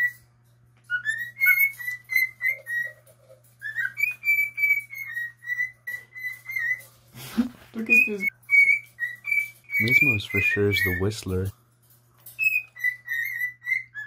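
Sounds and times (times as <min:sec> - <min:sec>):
cockatiel whistling: 0:00.9 - 0:06.9, 0:07.9 - 0:11.3, 0:12.4 - 0:14.0.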